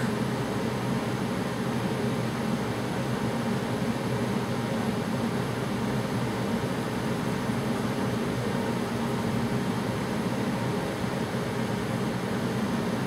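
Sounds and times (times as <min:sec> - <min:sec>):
heater fan rushing: 0:00.0 - 0:13.0.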